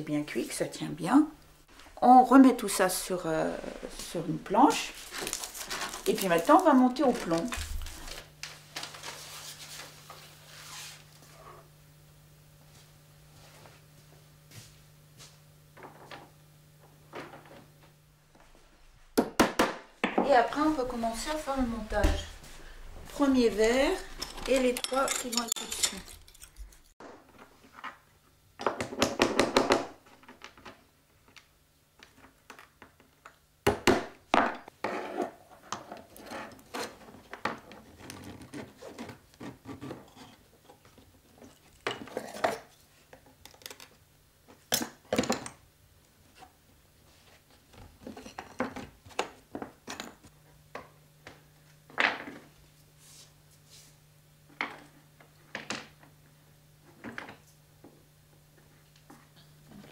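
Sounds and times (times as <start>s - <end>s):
glass pieces clinking: 24.2s - 26.9s.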